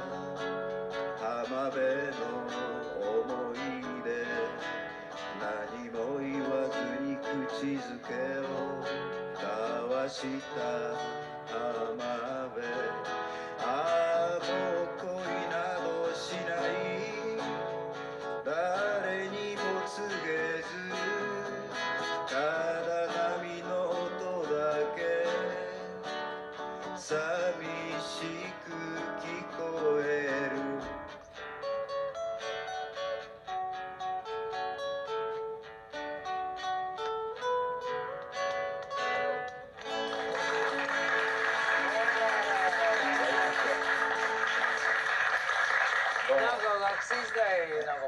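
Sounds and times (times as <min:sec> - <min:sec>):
acoustic guitar: 0:00.0 - 0:48.0
man singing into a microphone: 0:01.2 - 0:26.2, 0:26.8 - 0:31.2.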